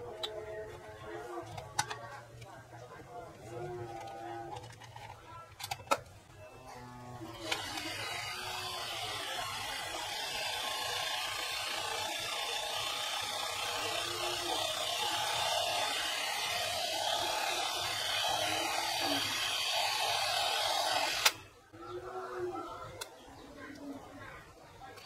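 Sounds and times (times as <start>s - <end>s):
tape rewinder motor whirring: 7.3s - 21.5s.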